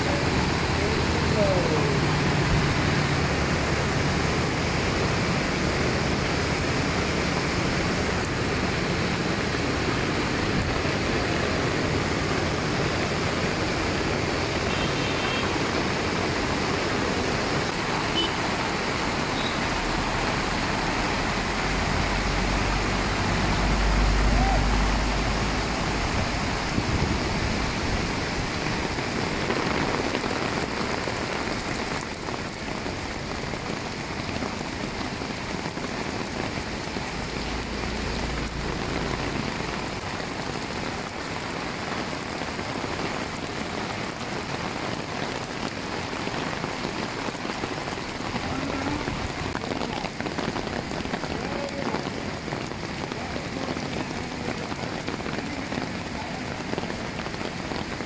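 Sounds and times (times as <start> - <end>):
whitewater rapids rushing: 0.0 - 29.5
heavy rain: 0.0 - 58.0.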